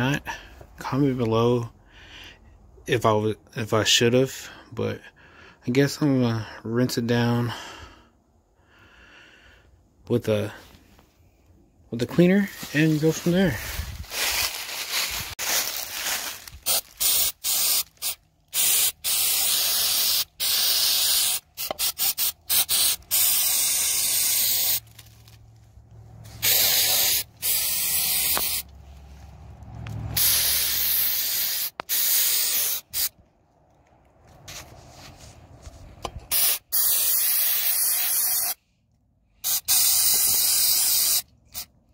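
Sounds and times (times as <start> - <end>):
aerosol spray hissing: 16.6 - 24.8, 26.4 - 28.7, 30.2 - 33.1, 36.3 - 38.6, 39.4 - 41.2.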